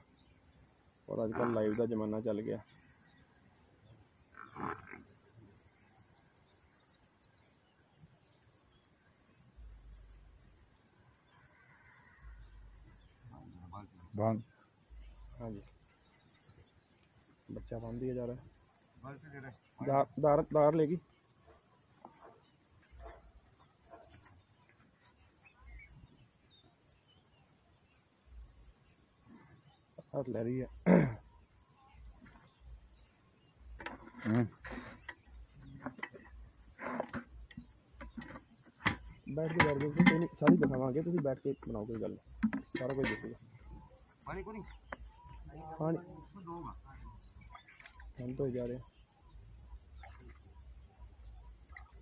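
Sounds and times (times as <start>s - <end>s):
small birds chirping: 0.0s - 52.0s
buffalo grunt: 4.3s - 5.6s.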